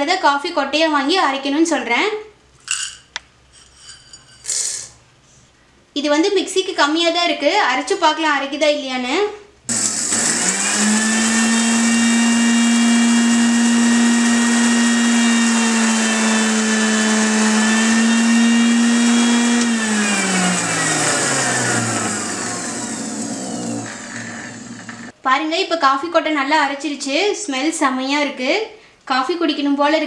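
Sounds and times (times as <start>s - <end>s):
mixer grinder motor humming: 9.7s - 25.1s
blades spinning down: 17.4s - 25.1s.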